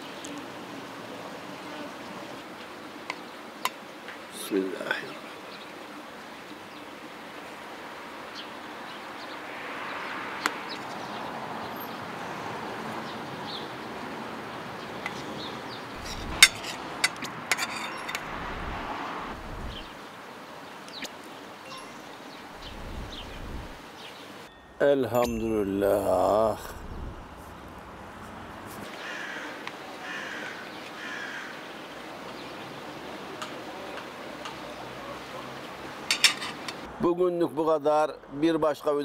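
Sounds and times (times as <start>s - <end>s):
distant car passing: 9.4s - 13.4s, 15.6s - 20.0s, 25.8s - 29.4s
spoon scraping metal plate: 16.0s - 18.8s, 36.1s - 36.8s.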